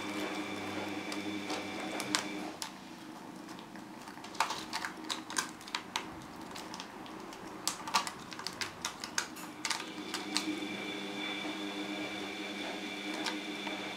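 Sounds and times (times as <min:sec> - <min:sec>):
steady hum: 0:09.5 - 0:13.9.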